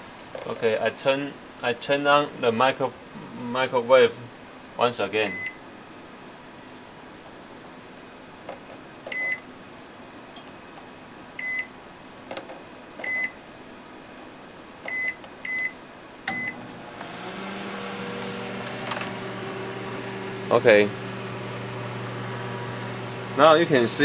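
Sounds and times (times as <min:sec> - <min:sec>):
microwave oven humming: 0:02.1 - 0:24.0
microwave keypad beeps: 0:05.3 - 0:05.6, 0:09.1 - 0:09.4, 0:11.4 - 0:11.7, 0:13.0 - 0:13.4, 0:14.9 - 0:16.6.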